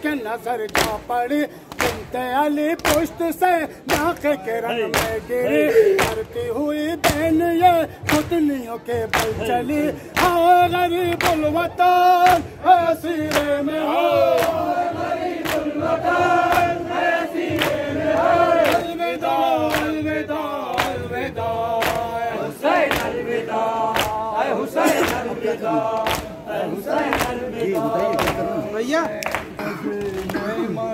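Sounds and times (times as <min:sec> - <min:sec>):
men chanting in unison: 0:00.0 - 0:30.9
hands slapping chests: 0:00.7 - 0:01.1, 0:01.7 - 0:02.1, 0:02.8 - 0:03.2, 0:04.9 - 0:05.3, 0:06.0 - 0:06.4, 0:09.1 - 0:09.4, 0:11.1 - 0:11.5, 0:13.2 - 0:13.6, 0:14.3 - 0:14.7, 0:15.4 - 0:15.8, 0:17.5 - 0:18.9, 0:19.6 - 0:20.0, 0:20.7 - 0:21.1, 0:21.7 - 0:22.1, 0:22.8 - 0:23.2, 0:23.8 - 0:24.2, 0:24.8 - 0:30.5.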